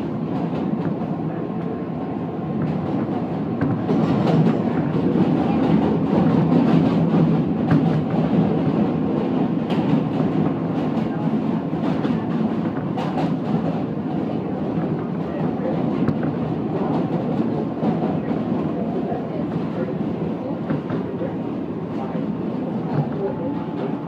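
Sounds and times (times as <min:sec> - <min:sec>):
subway train rumble: 0:00.0 - 0:24.0
wheels clacking on track: 0:02.6 - 0:21.3.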